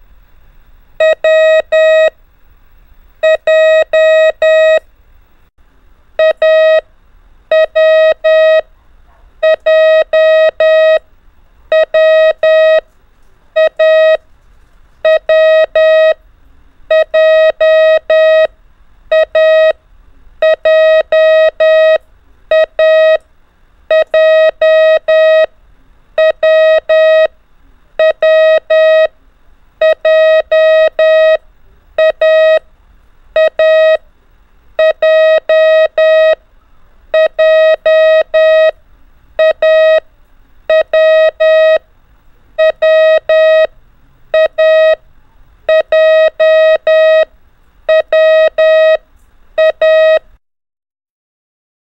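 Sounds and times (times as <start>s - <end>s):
morse code beeps: 1.0s - 2.1s, 3.2s - 4.8s, 6.2s - 6.8s, 7.5s - 8.6s, 9.4s - 11.0s, 11.7s - 12.8s, 13.6s - 14.2s, 15.0s - 16.2s, 16.9s - 18.5s, 19.1s - 19.8s, 20.4s - 23.2s, 23.9s - 25.5s, 26.2s - 27.3s, 28.0s - 29.1s, 29.8s - 31.4s, 32.0s - 32.6s, 33.4s - 34.0s, 34.8s - 36.4s, 37.1s - 38.8s, 39.4s - 40.0s, 40.7s - 41.8s, 42.6s - 43.7s, 44.3s - 45.0s, 45.7s - 47.3s, 47.9s - 49.0s, 49.6s - 50.3s.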